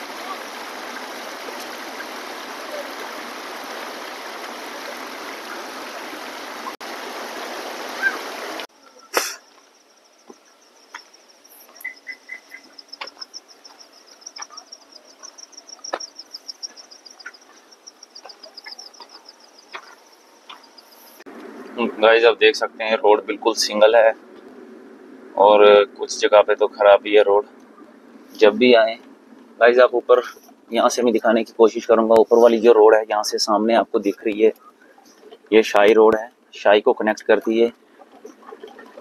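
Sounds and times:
waterfall roaring: 0.0 - 9.4
insects trilling: 7.9 - 21.2.

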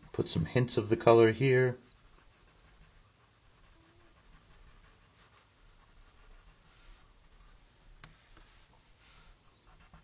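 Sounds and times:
pencil scratching on paper: 1.8 - 7.7, 8.4 - 10.0.

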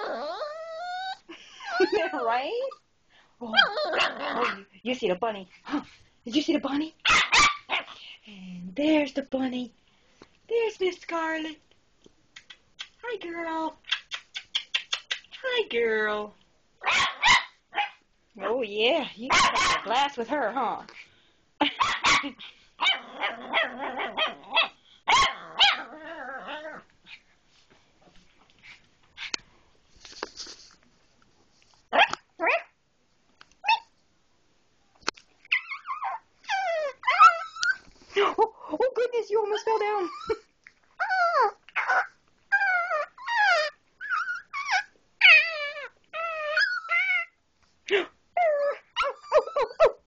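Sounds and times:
small dog whining: 0.0 - 2.1, 33.6 - 33.9, 35.5 - 37.8, 41.0 - 47.4, 48.4 - 50.0
dog yipping: 7.0 - 7.9, 16.8 - 18.0, 19.3 - 19.9, 21.8 - 26.7, 31.9 - 32.7, 33.6 - 33.9, 35.5 - 37.8, 41.0 - 47.4, 48.4 - 50.0.

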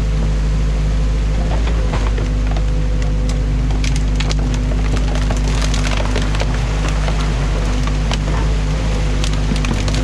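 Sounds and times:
excavator engine running: 0.0 - 10.0
sticks cracking and snapping: 3.0 - 8.3.

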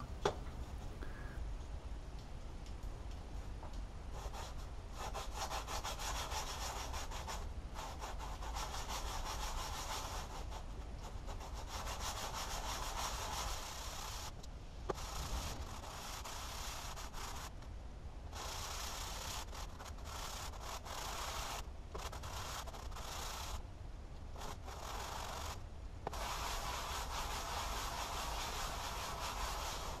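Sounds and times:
blade scraping on sandpaper: 5.0 - 10.6, 11.3 - 17.5, 18.3 - 23.6, 24.4 - 30.0.

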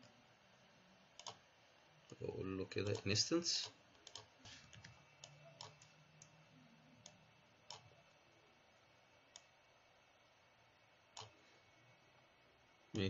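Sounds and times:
computer mouse clicking: 1.2 - 1.4, 2.8 - 6.4, 7.0 - 8.1, 9.3 - 9.5, 11.2 - 11.4.

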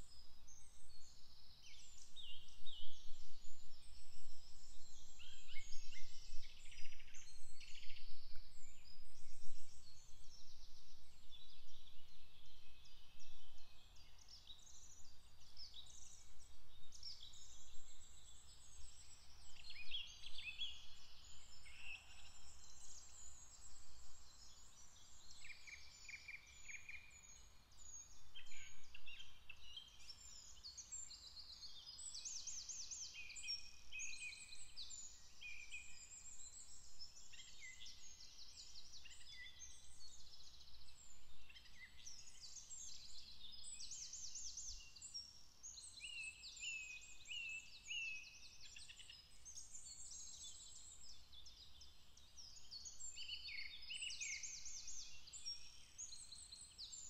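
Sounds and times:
songbirds singing: 0.0 - 57.0.

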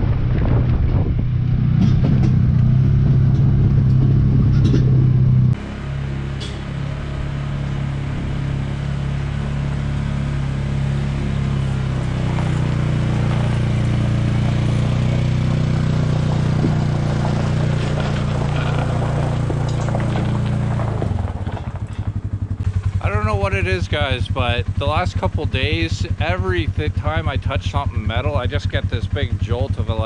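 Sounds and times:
utility vehicle engine driving past: 0.0 - 29.9.

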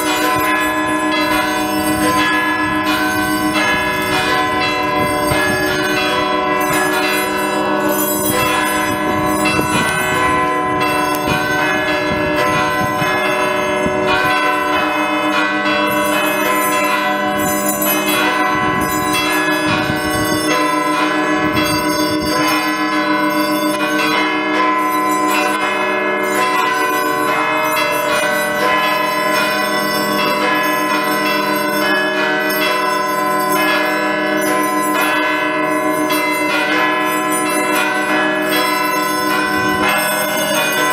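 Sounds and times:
church bells pealing: 0.0 - 40.9.

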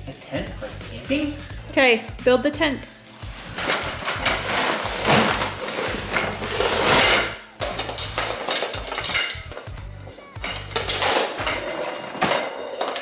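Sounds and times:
metal tent poles clattering: 3.5 - 13.0.

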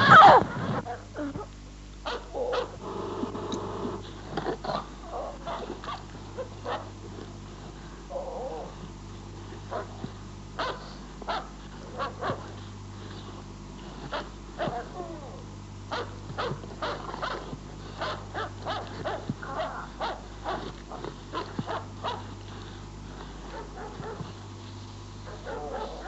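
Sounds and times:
dog yips and whimpers: 0.0 - 0.5, 16.0 - 22.3, 25.3 - 26.0
dog whining: 0.0 - 1.5, 25.3 - 26.0
low hum: 0.0 - 26.0.

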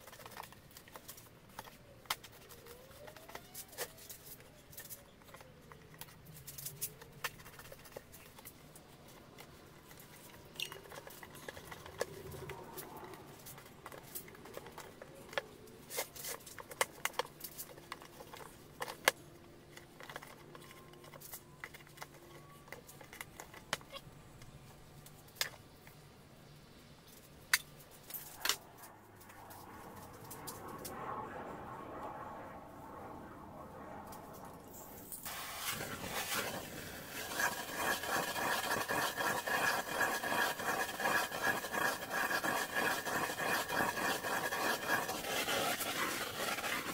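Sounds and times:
knife cutting rubber tyre: 35.3 - 46.9.

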